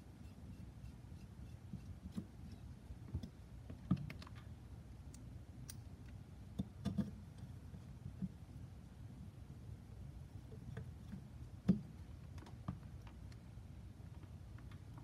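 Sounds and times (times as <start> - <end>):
light clicks and taps of parts: 5.1 - 8.4.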